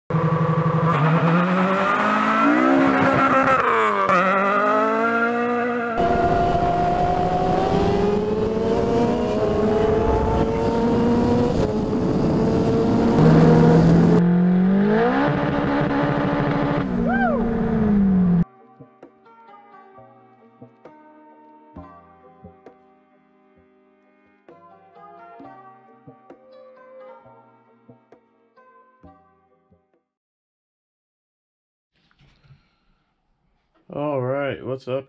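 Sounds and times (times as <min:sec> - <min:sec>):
engines accelerating hard: 0:00.1 - 0:18.4.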